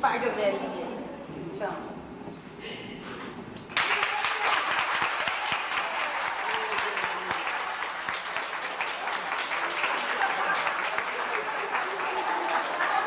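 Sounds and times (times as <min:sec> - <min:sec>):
crowd applauding: 0:03.7 - 0:13.0.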